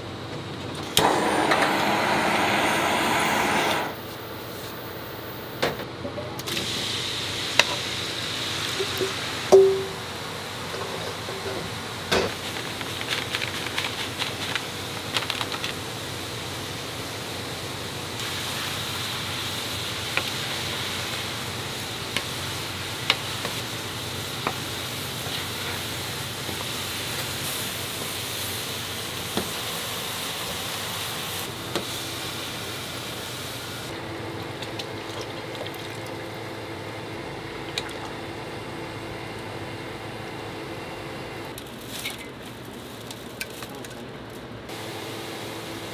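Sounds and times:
low hum: 2.6s - 5.8s
food sizzling in wok: 18.2s - 33.8s.

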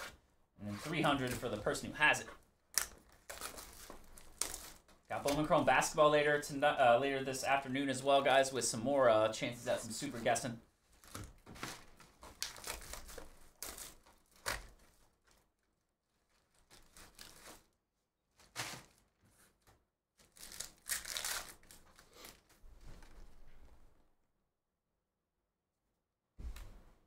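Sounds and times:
wrapper and cardboard tearing: 0.8s - 5.8s, 11.0s - 15.4s, 16.2s - 17.8s, 20.2s - 23.2s.

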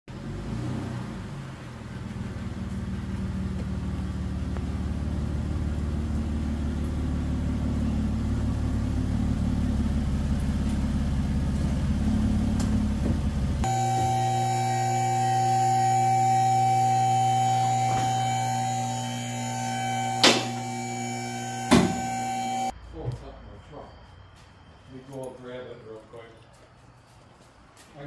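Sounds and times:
car engine running: 1.6s - 22.7s.

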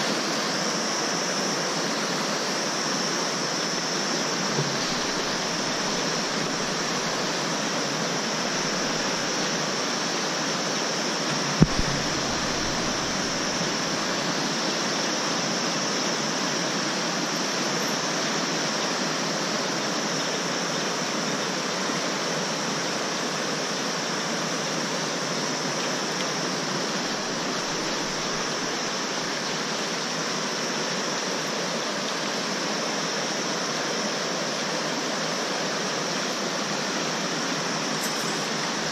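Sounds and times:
stream rushing over stones: 0.0s - 38.9s
brief thump: 4.6s - 6.8s, 11.6s - 13.6s.

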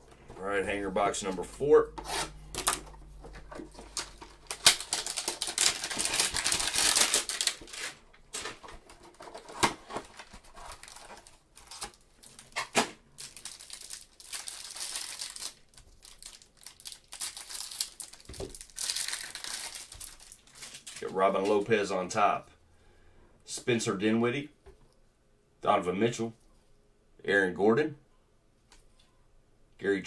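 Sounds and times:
plastic wrapping crinkling: 2.5s - 21.6s.

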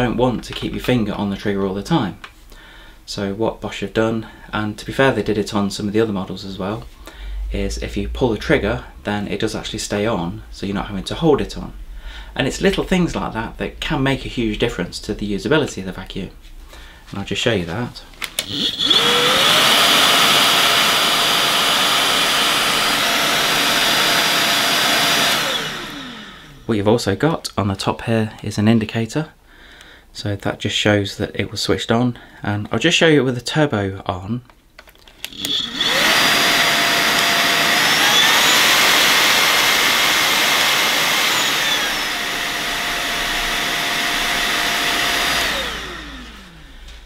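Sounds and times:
handheld vacuum cleaner whine: 18.2s - 26.7s, 35.2s - 47.0s.

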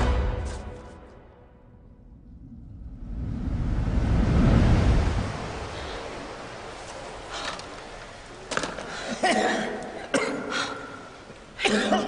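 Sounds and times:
person coughing: 9.1s - 11.0s, 11.6s - 12.0s.

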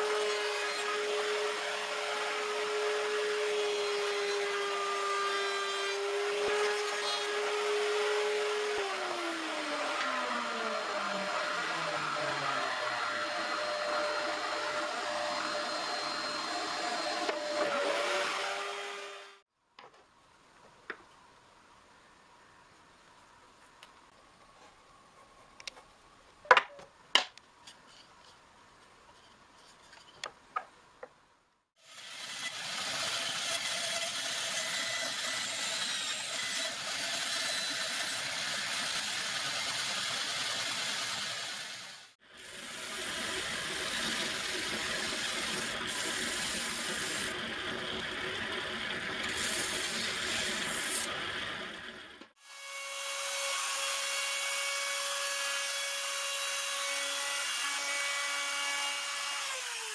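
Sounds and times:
power tool cutting wood: 0.0s - 19.4s, 31.8s - 59.9s
router whine: 0.0s - 19.4s.

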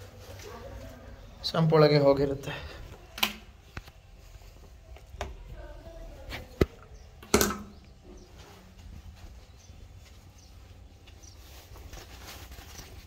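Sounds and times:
handling knocks and clicks: 6.6s - 7.9s.

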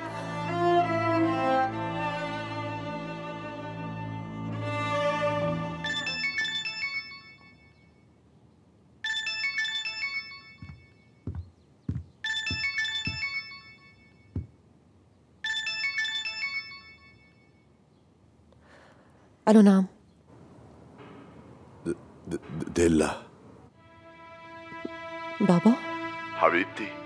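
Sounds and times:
phone ringtone chime melody: 5.8s - 7.9s, 9.0s - 11.1s, 12.3s - 14.3s, 15.4s - 17.6s.

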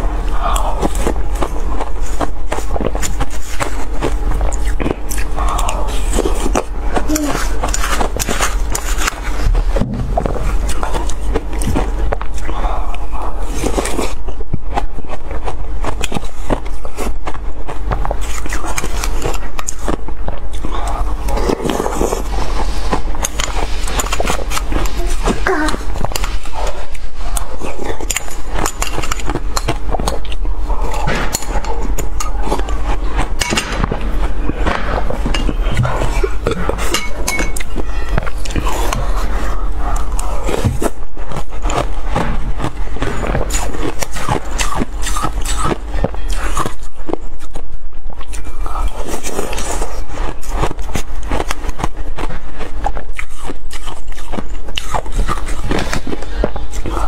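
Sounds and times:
crunching and chewing ice: 0.0s - 57.0s
metal spoon scraping glass bowl: 36.9s - 38.2s.

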